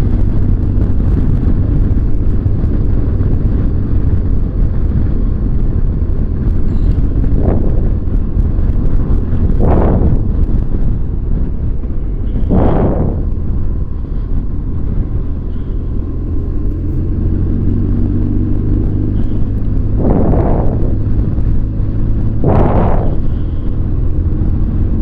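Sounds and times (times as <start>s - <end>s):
motorcycle engine drone: 0.0s - 25.0s
wind rush: 0.0s - 25.0s
brief whooshes: 12.4s - 13.4s, 22.4s - 23.6s.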